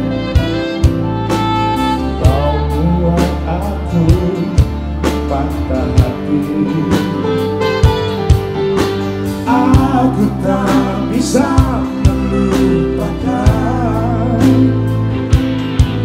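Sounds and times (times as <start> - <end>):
drums: 0.0 - 16.0
electric bass: 0.0 - 16.0
man singing into microphone: 2.2 - 7.6, 9.4 - 15.1.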